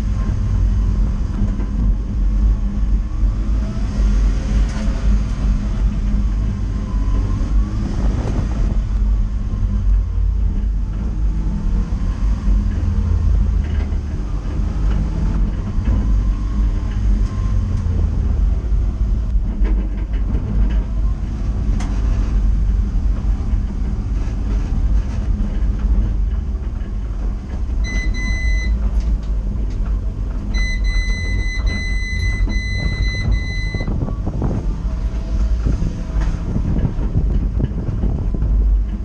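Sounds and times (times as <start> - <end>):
car engine drone: 0.0 - 39.0
road and cabin rattle: 0.0 - 39.0
electronic warning beeps: 27.8 - 28.8, 30.6 - 33.9.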